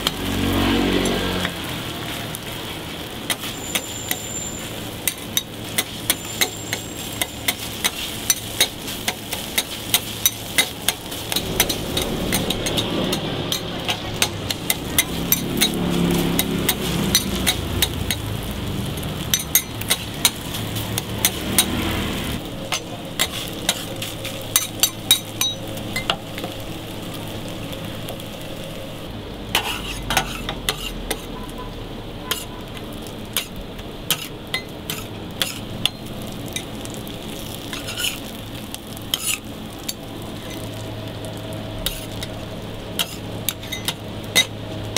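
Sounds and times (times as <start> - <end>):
burger patties sizzling: 0.0 - 44.9
spatula scraping metal griddle: 3.2 - 18.3, 22.7 - 26.1, 29.5 - 31.4, 32.2 - 32.6, 33.3 - 36.7, 37.4 - 38.4, 39.0 - 40.8, 41.8 - 42.3, 42.9 - 44.6.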